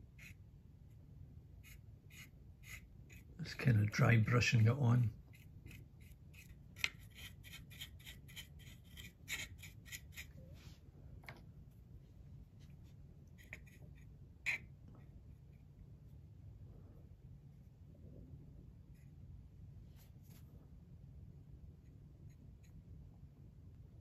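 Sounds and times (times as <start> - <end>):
paintbrush bristles scratching: 1.6 - 10.8.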